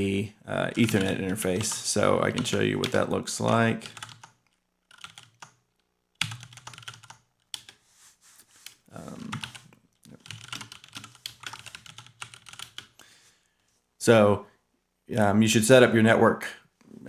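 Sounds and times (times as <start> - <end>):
computer keyboard typing: 0.7 - 5.6, 6.2 - 7.8, 8.6 - 13.0.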